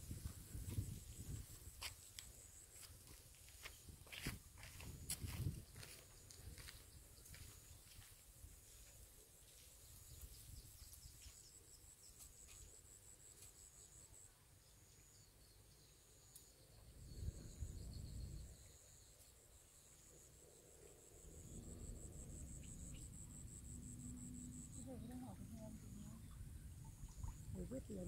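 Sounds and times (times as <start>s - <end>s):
crickets trilling: 14.9s - 28.0s.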